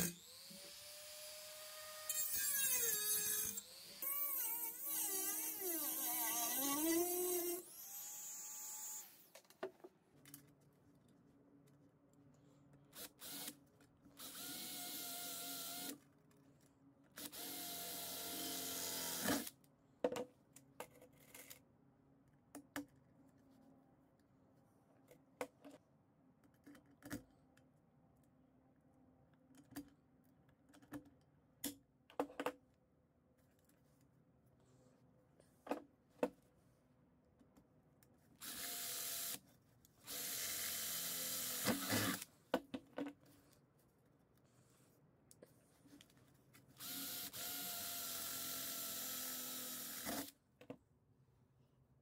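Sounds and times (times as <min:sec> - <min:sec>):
cordless drill drilling sheet metal: 0:00.0 - 0:09.3, 0:13.0 - 0:13.5, 0:14.2 - 0:16.0, 0:17.2 - 0:19.5, 0:38.4 - 0:39.4, 0:40.0 - 0:42.3, 0:46.8 - 0:50.3
drill boring through metal: 0:46.8 - 0:50.3.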